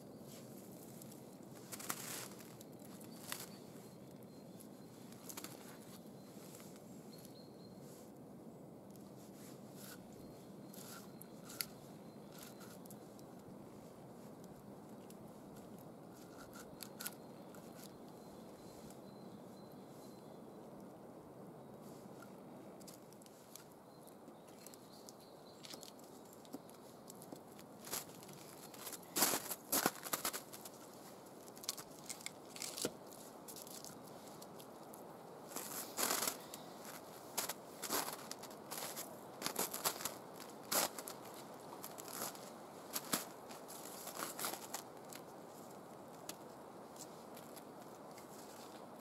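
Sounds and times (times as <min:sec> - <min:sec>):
low outdoor hiss: 0:00.0 - 0:49.0
footsteps crunching in snow: 0:27.8 - 0:34.9, 0:35.5 - 0:48.8.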